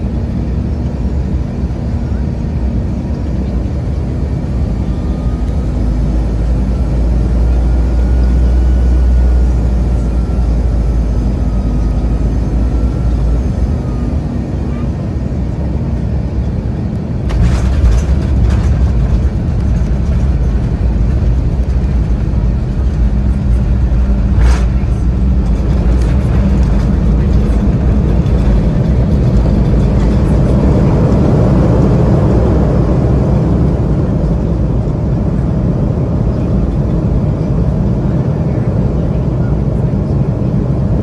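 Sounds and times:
jet engines: 0.0s - 41.0s
wheels rumbling on runway: 0.0s - 41.0s
airliner landing jolt: 16.6s - 41.0s.

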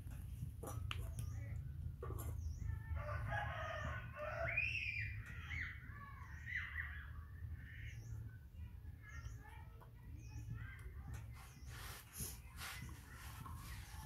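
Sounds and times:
rooster crowing: 3.0s - 4.7s.

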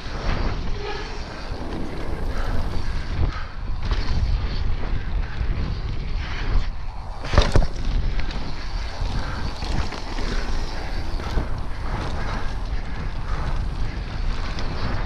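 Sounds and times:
tyres rolling on dirt trail: 0.0s - 15.0s
wind over microphone: 0.0s - 15.0s
bike knocking over bumps: 7.2s - 12.6s.

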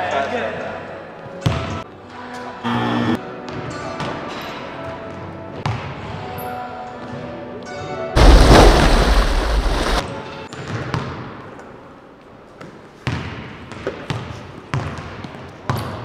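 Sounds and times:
loud sudden burst of noise: 8.2s - 10.0s.

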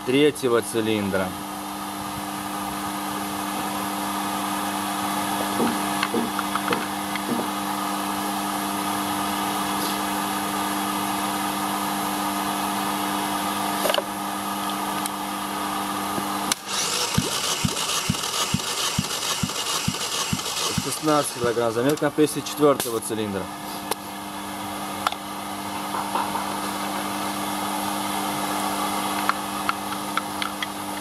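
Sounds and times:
engine turned over by motor: 16.5s - 22.0s.

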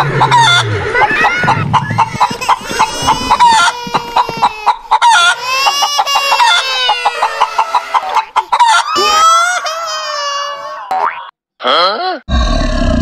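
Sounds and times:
chicken clucking: 0.0s - 9.7s.

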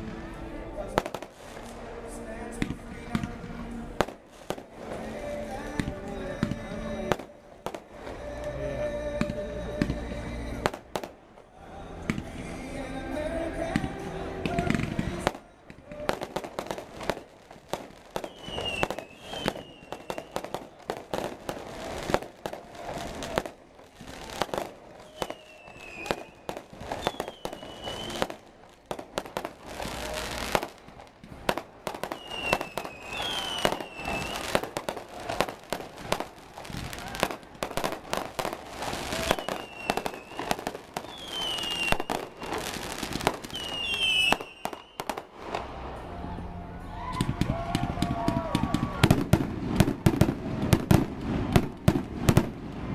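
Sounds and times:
fireworks bangs and crackles: 0.0s - 46.2s, 47.1s - 52.9s
high whistle dipping and rising: 25.0s - 28.2s, 32.2s - 34.5s.

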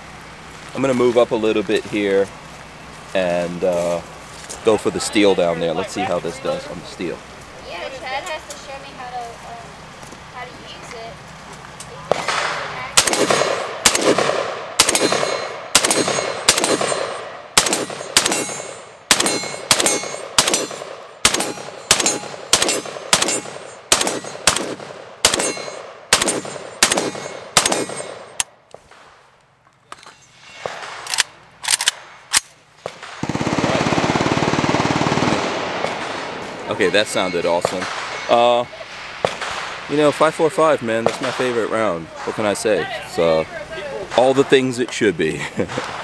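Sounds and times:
rapid semi-automatic gunshots: 12.1s - 28.4s, 32.8s - 36.6s, 39.2s - 39.9s.

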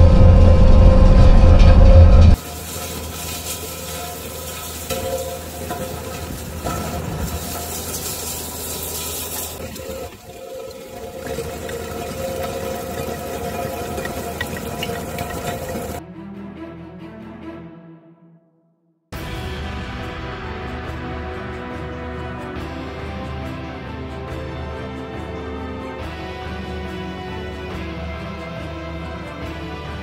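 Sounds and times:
diesel engine running under load: 0.0s - 10.1s
rake churning through gravel: 2.4s - 10.0s.

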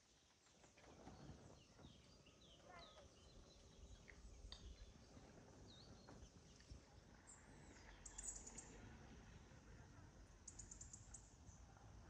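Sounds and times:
soft bird chirps: 0.0s - 9.5s, 10.4s - 11.8s
faint low wind rumble: 0.0s - 12.0s.

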